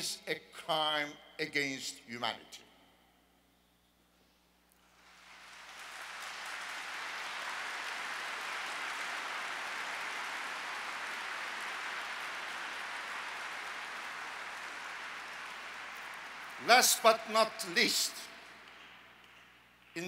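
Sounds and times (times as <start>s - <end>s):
audience applauding: 4.8s - 20.0s.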